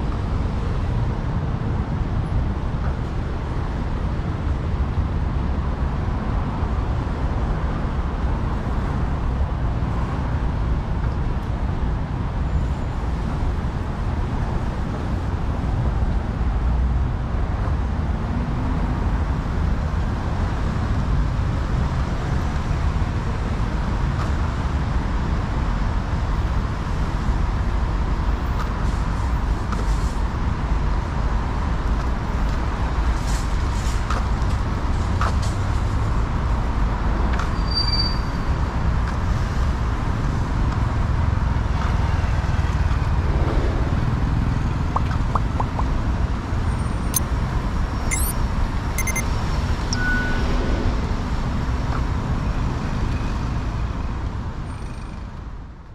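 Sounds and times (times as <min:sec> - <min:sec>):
city street traffic rumble: 0:00.0 - 0:55.9.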